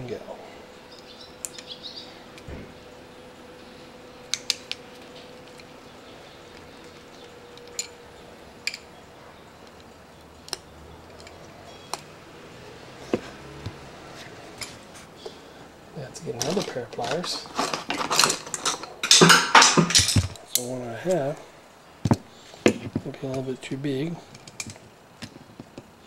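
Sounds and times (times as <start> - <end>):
hand tools clicking on metal: 6.5 - 8.0, 9.6 - 12.1, 16.3 - 20.7.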